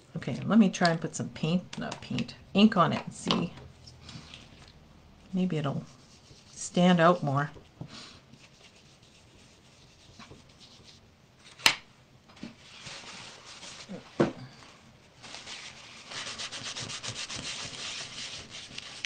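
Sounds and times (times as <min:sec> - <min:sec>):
ink rubbing on textured paper: 0:05.9 - 0:06.9, 0:08.3 - 0:11.0, 0:16.0 - 0:19.0.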